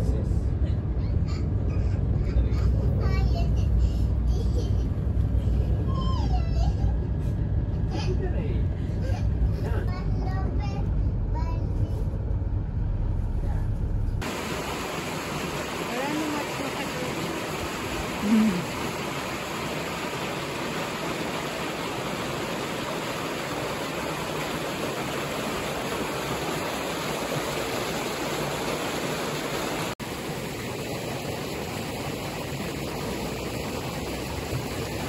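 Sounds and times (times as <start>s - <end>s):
stream flowing: 14.2s - 35.0s.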